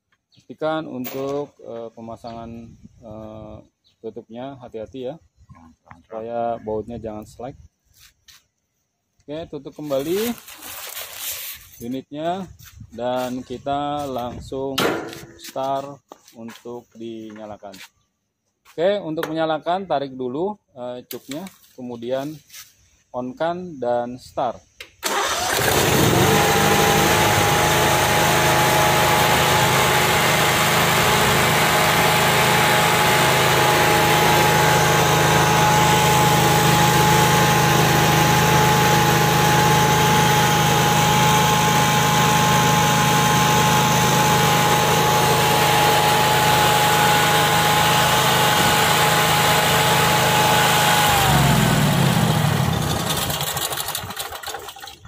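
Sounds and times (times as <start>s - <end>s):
generator engine starting and running: 25.0s - 55.0s.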